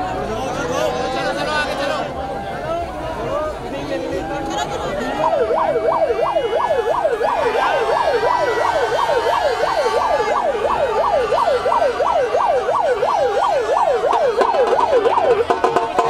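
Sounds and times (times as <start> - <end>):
electronic siren yelping: 5.1 - 16.0.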